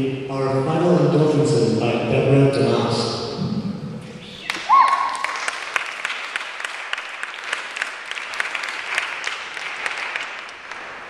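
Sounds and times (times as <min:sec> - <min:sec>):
audience clapping: 0:04.4 - 0:11.0.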